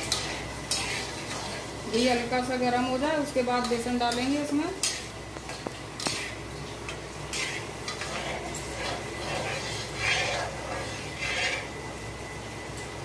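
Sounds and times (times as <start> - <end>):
ladle scraping metal pan: 0.0 - 2.3, 6.0 - 6.4, 7.3 - 11.8.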